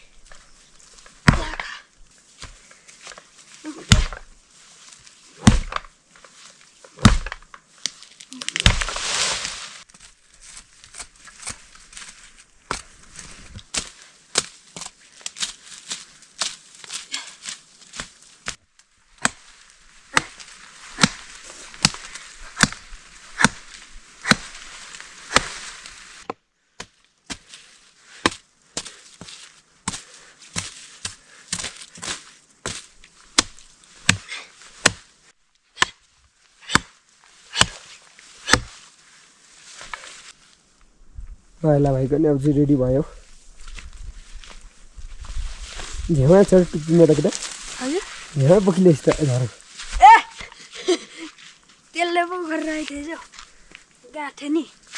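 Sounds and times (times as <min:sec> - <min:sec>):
brush rustling: 0:00.0 - 0:54.9
blade chopping wood: 0:01.2 - 0:01.7, 0:03.9 - 0:04.3, 0:05.4 - 0:05.9, 0:07.0 - 0:07.5, 0:08.6 - 0:09.0, 0:19.2 - 0:19.5, 0:20.1 - 0:24.7, 0:25.3 - 0:27.5, 0:29.9 - 0:32.8, 0:33.4 - 0:35.1, 0:35.8 - 0:36.0, 0:36.6 - 0:37.8, 0:38.4 - 0:38.8.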